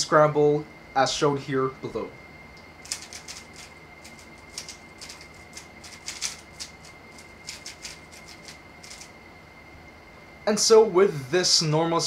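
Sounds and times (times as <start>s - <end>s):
puzzle cube clicking: 4.5s - 6.7s.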